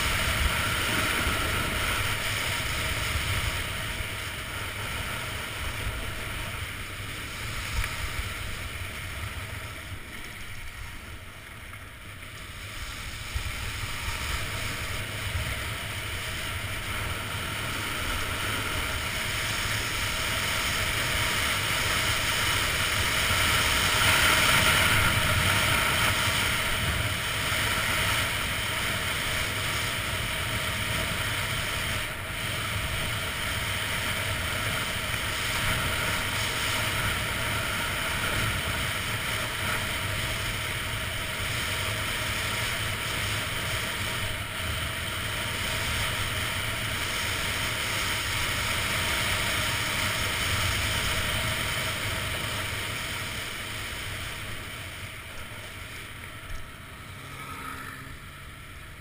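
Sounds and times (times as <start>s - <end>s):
wind on microphone: 0.0s - 11.0s
skis sliding over snow: 0.0s - 59.0s.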